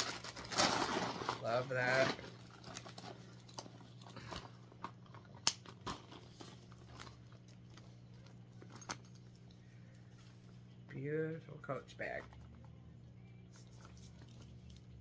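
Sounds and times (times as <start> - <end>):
plastic packing rustling: 0.0 - 8.8
faint low hum: 0.0 - 15.0.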